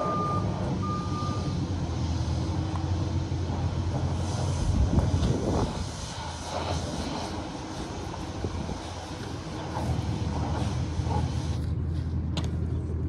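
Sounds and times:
electronic warning beeper: 0.0s - 1.6s
tractor engine running: 0.0s - 13.0s.

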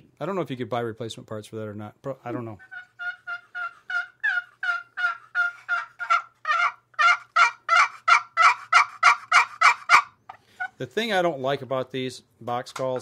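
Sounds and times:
turkey call yelps: 2.6s - 10.8s.

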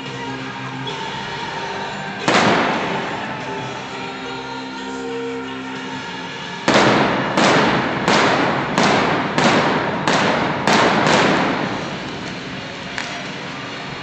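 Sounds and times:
pyrotechnic blasts echoing: 2.2s - 4.2s, 6.6s - 13.4s.

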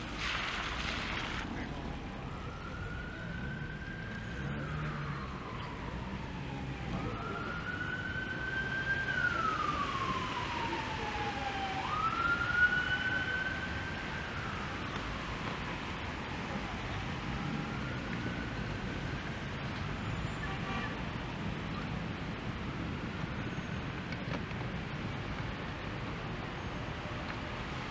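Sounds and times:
rain hissing: 0.0s - 1.7s
traffic on wet street: 0.0s - 27.9s
emergency siren wailing: 1.6s - 20.5s.

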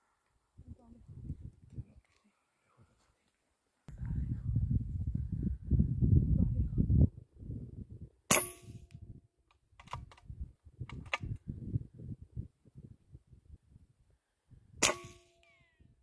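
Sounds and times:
rifle shot: 8.3s - 8.8s, 14.8s - 15.4s
metallic ring: 8.3s - 8.9s, 14.8s - 15.7s.

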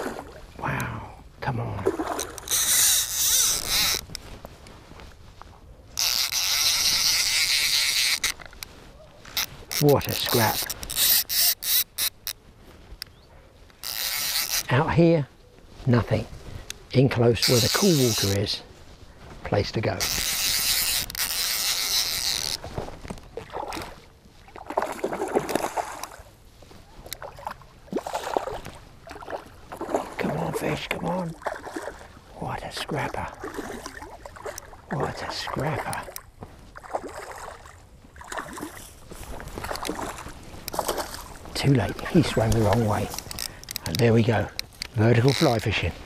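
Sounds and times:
fly reel ratchet buzzing: 2.5s - 4.1s, 6.0s - 8.4s, 9.4s - 12.3s, 13.8s - 14.7s, 17.4s - 18.4s, 20.0s - 22.6s
fish splashing in water: 31.3s - 32.2s, 39.5s - 41.5s.

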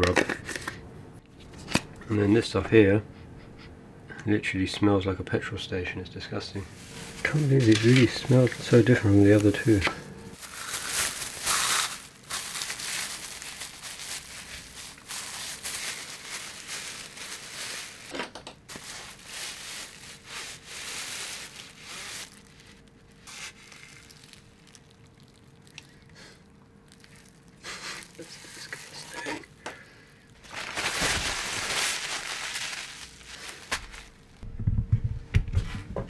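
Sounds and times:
plastic bag crinkling: 6.7s - 26.2s, 26.8s - 34.4s.

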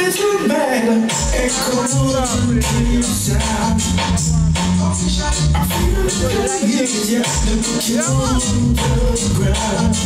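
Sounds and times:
loud music with pulsing bass: 0.0s - 10.0s.

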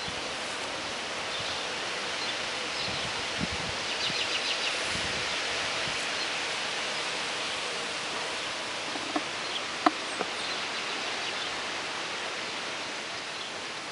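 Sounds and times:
honeybees buzzing: 4.3s - 11.5s
small taps: 8.9s - 10.3s.

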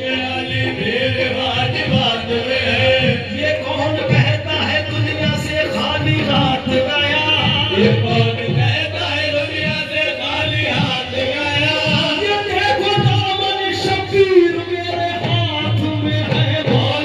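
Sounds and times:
men singing devotional song: 0.0s - 17.0s
drum beat: 4.0s - 17.0s.

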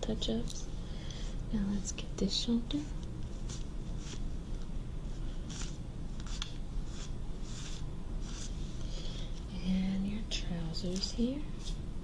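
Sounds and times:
lint brush brushing fabric: 2.7s - 8.8s.

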